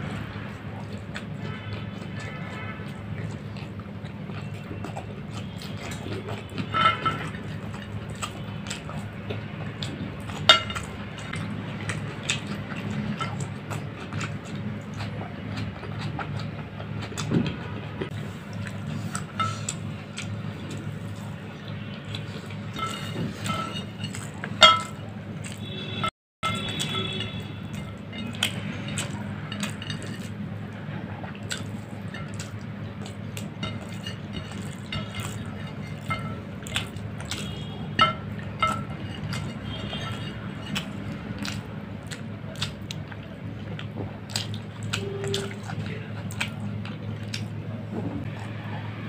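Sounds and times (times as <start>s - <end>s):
chewing: 0.0s - 49.0s
clinks on ceramic plate: 10.5s - 10.9s, 22.7s - 25.0s, 33.6s - 40.8s.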